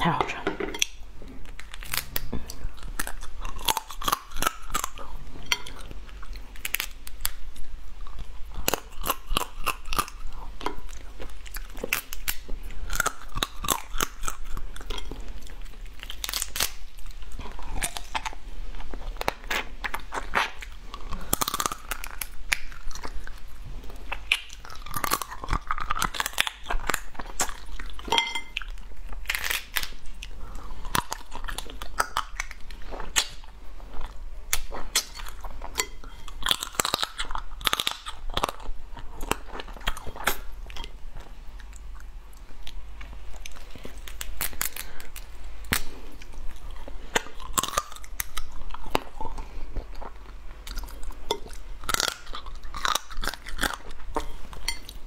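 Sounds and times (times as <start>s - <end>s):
crab shells cracking: 16.0s - 16.8s, 29.2s - 30.0s.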